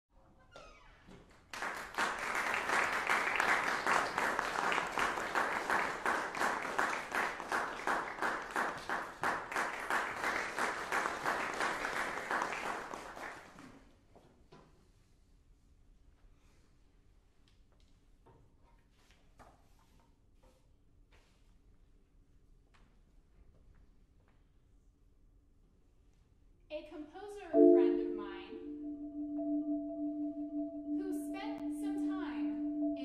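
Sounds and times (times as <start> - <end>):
audience applauding: 1.5 - 13.7.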